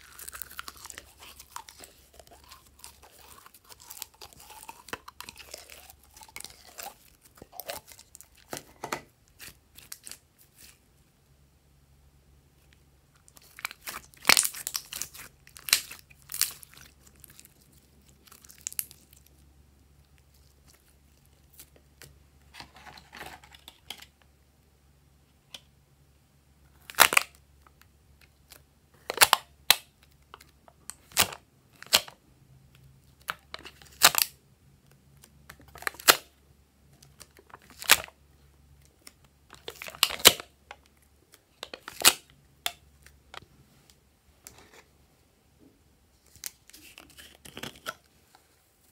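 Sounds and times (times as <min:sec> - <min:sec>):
slime squishing: 0:00.0 - 0:10.8, 0:13.2 - 0:22.0.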